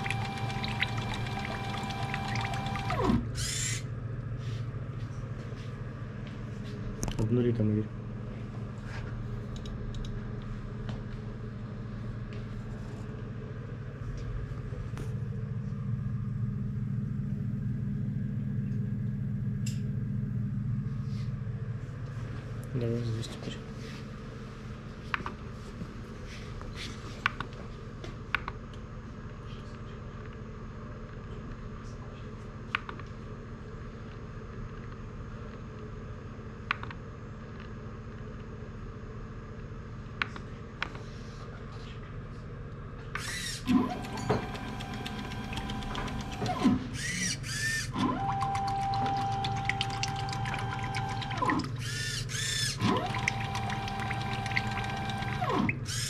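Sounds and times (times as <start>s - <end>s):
mixing machine motor humming: 0.0s - 3.4s, 43.2s - 56.0s
steady low hum: 0.0s - 55.8s.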